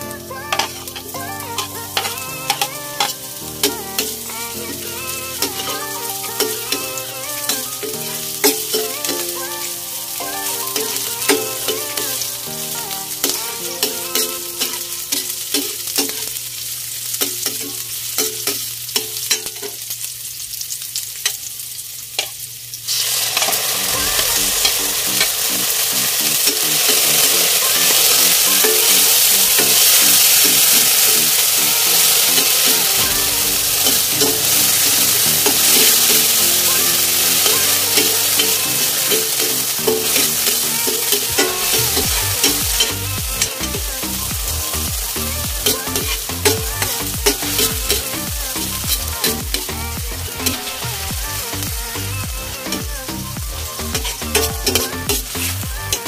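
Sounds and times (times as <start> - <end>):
food sizzling in oil: 0.0 - 56.0
loud steady sizzle: 0.0 - 56.0
metal ladle scraping a pan: 23.0 - 51.1, 53.7 - 56.0.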